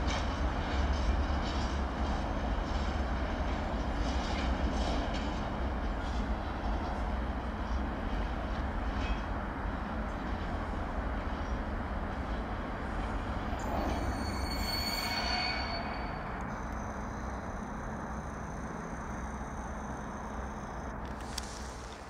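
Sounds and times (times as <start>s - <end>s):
freight train rumbling on rails: 0.0s - 22.0s
high wheel squeal: 13.4s - 21.0s.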